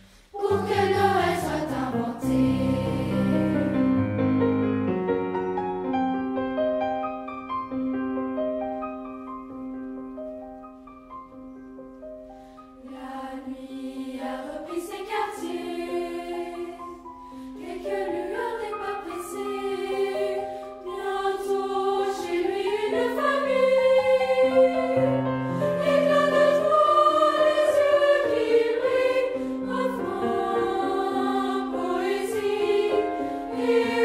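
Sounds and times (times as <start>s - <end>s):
children's choir singing: 0.3s - 3.8s, 12.8s - 34.0s
piano playing: 0.4s - 13.3s, 14.4s - 34.0s.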